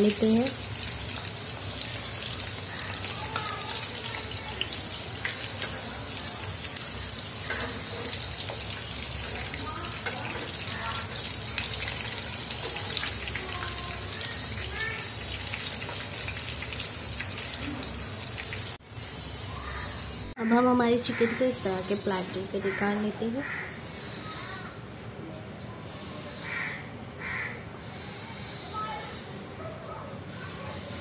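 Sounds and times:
chicken deep-frying in oil: 0.0 - 20.4.

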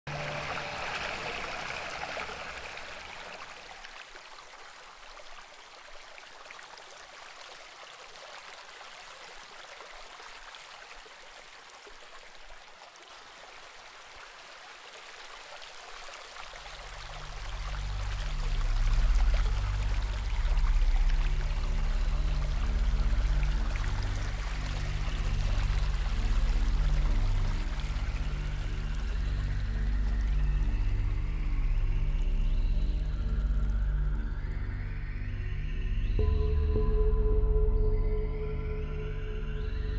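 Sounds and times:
water rushing: 0.1 - 32.4
deep bass notes of music: 16.8 - 39.9.

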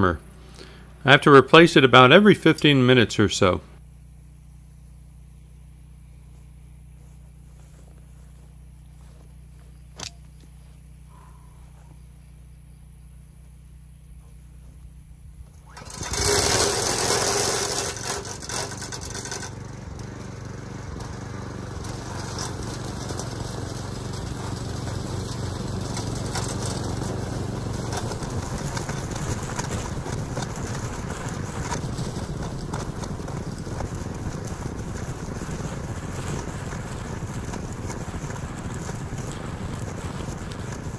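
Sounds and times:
sharp click: 10.0 - 10.3
string trimmer engine running: 14.0 - 40.9.

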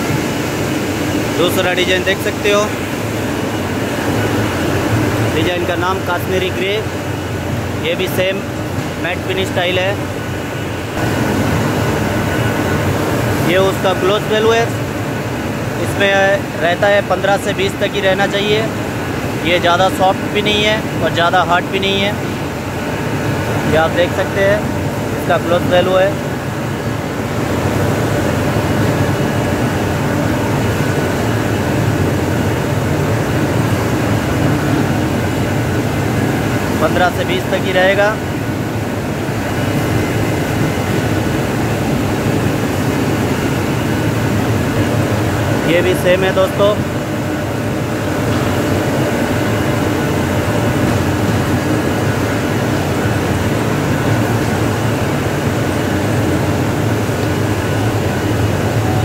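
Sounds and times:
loud mechanical drone: 0.0 - 59.0
low rumbling background noise: 0.0 - 59.0.

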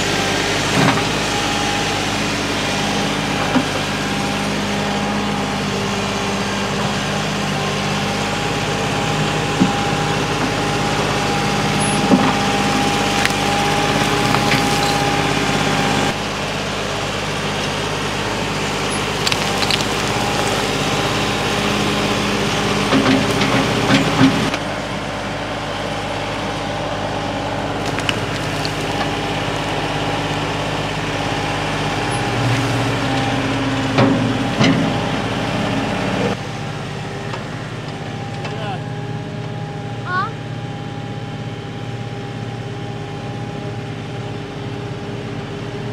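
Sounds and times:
tractor engine running: 0.0 - 45.9
bucket dumping dirt and rocks: 11.8 - 15.7, 18.8 - 22.0, 27.7 - 29.5
knocks of falling rocks: 13.1 - 15.1, 19.0 - 21.0, 27.8 - 29.2.

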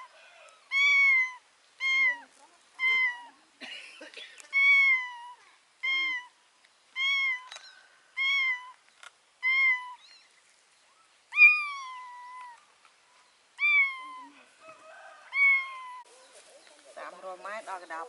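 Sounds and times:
kitten meowing: 0.7 - 2.2, 2.8 - 3.3, 4.5 - 6.4, 7.0 - 8.8, 9.4 - 10.3, 11.3 - 12.6, 13.6 - 14.4, 15.3 - 16.1.

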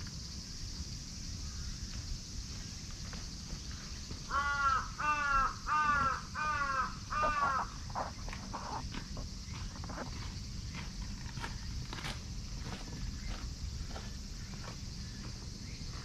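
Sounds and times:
crow cawing: 4.3 - 7.8.

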